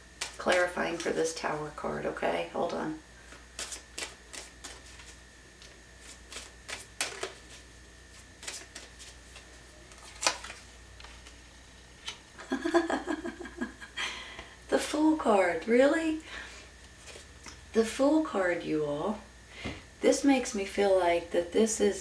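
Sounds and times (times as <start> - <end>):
cards rustling and tapping on table: 3.3 - 7.6
card snaps and flicks: 10.1 - 10.6.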